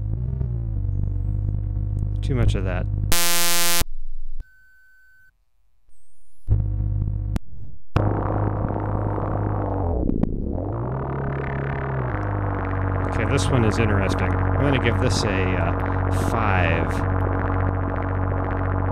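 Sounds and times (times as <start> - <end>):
low bass note: 2.9 - 3.8, 8.0 - 18.9
loud buzzing synth tone: 3.1 - 3.8, 14.0 - 18.9
thin high beep: 3.2 - 3.8
dense droning synth texture: 8.0 - 18.9.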